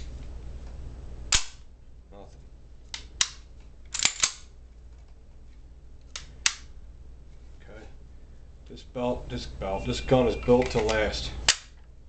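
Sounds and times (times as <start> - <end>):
pistol action clicking: 1.3 - 1.6, 2.9 - 4.5, 6.0 - 6.7, 10.6 - 11.8.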